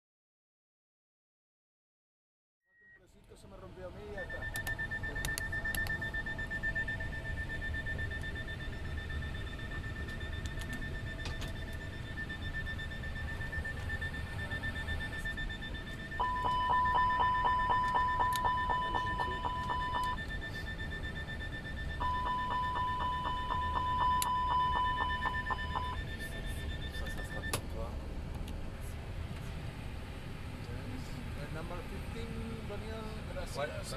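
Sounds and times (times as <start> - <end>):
rapidly pulsing warning chime: 3.0 - 27.9
cockpit hum: 3.2 - 33.9.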